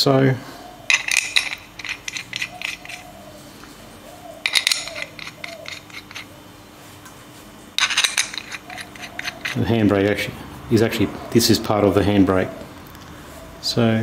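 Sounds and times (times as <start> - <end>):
metal bolts clinking: 0.9 - 3.1, 4.5 - 6.3, 7.8 - 9.7.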